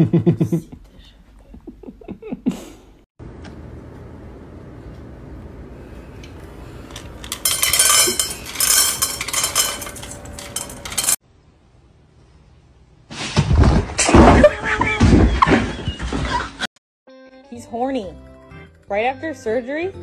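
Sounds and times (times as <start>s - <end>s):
dry kibble clattering in steel bowl: 6.9s - 11.2s.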